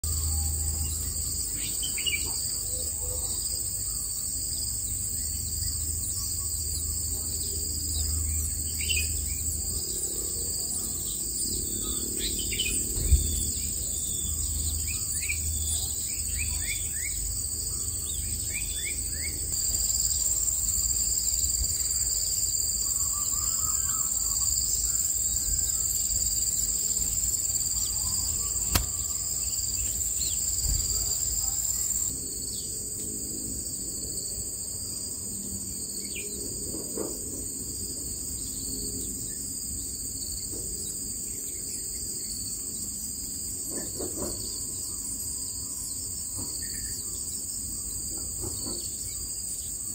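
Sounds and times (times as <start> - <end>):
high-pitched insect drone: 0.0 - 36.3
high falling bird chirps: 11.9 - 32.1
sharp clicks: 28.7 - 29.0.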